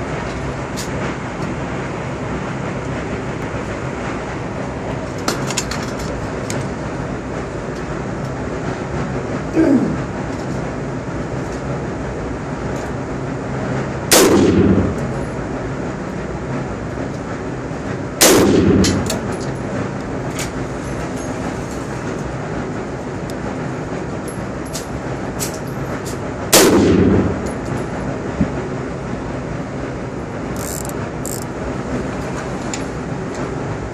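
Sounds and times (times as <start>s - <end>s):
steady rushing background noise: 0.0s - 33.9s
rifle shots ringing indoors: 14.1s - 15.0s, 18.2s - 19.2s, 26.5s - 27.4s.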